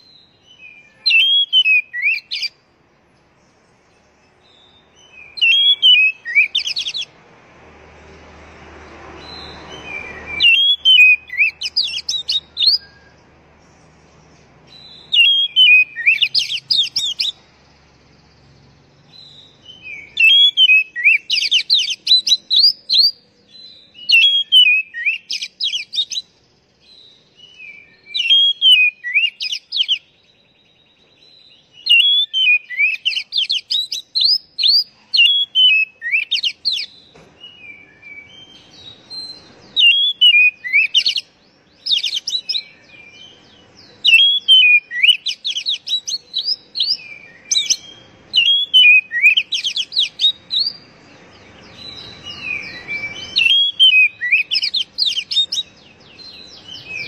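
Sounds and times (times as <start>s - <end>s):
bird singing whistles and trills: 0.0s - 7.1s, 9.2s - 57.0s.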